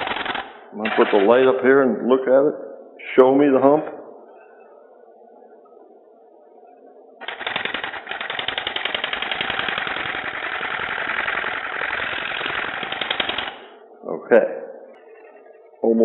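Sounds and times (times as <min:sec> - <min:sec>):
woodturning tool rattling cut: 0:00.0 - 0:01.4, 0:07.2 - 0:13.7.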